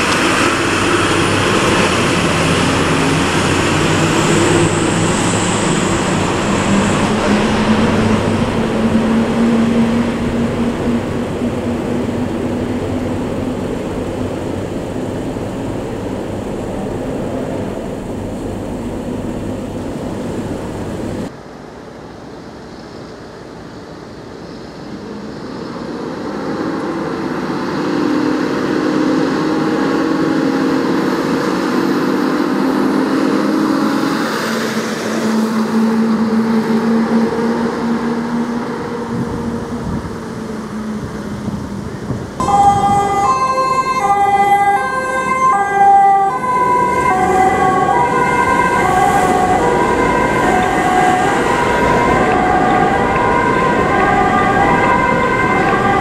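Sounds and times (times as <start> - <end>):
fire engine driving: 0.0 - 21.5, 24.9 - 56.0
two-tone siren: 2.7 - 13.6, 35.1 - 41.6, 42.4 - 56.0.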